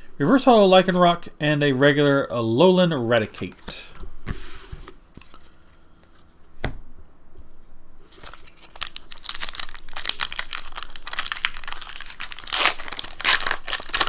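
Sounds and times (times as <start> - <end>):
foil wrapper crinkling and tearing: 8.1 - 14.0.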